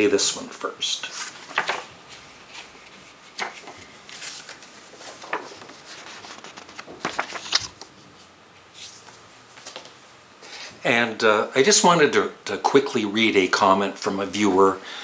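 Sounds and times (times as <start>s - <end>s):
paper rustling: 1.0s - 10.0s.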